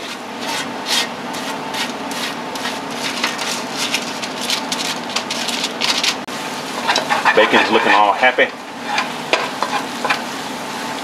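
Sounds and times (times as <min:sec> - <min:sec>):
bacon sizzling in a roux: 0:00.0 - 0:11.0
foil crinkling against a pan: 0:02.2 - 0:06.3, 0:06.9 - 0:08.4.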